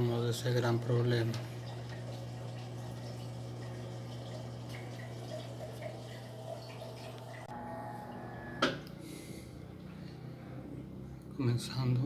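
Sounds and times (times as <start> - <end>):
water running: 0.0 - 8.5
washing machine drain pump humming: 0.0 - 9.0.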